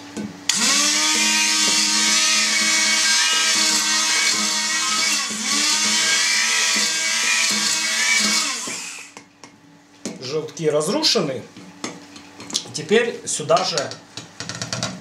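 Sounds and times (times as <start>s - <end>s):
immersion blender running: 0.5s - 9.2s.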